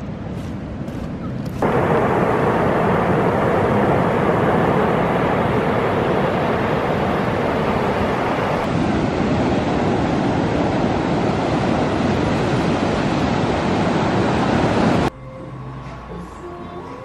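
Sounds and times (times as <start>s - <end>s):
sea surf breaking on beach: 1.6s - 15.1s.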